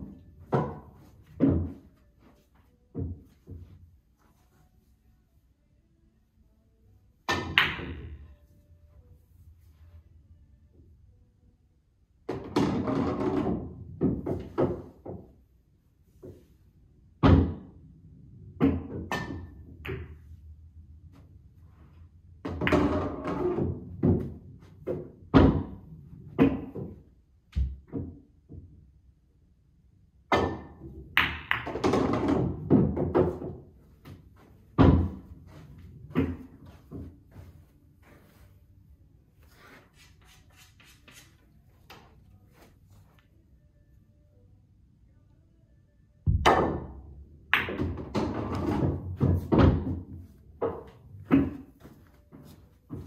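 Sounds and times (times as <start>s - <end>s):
pool balls knocking: 12.3s - 15.3s, 22.4s - 27.0s, 30.3s - 35.3s, 46.3s - 53.0s.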